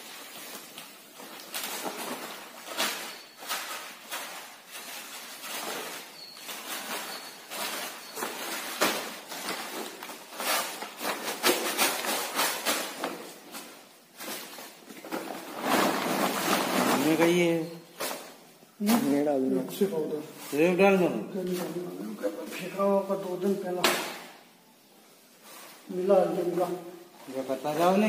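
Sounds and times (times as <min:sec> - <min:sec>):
plastic sack rustling: 0:00.0 - 0:24.5, 0:25.2 - 0:28.0.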